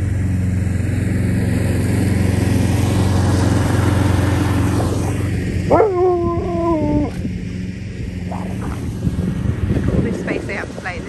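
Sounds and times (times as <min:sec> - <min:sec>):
lawn mower engine running: 0:00.0 - 0:11.0
dog howling: 0:05.7 - 0:07.3.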